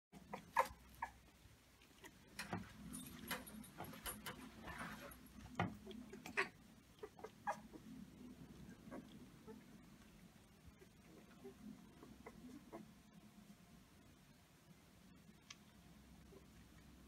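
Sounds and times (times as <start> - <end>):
puppies squeaking and whimpering: 0.3 - 1.3, 6.1 - 7.9, 8.8 - 9.7.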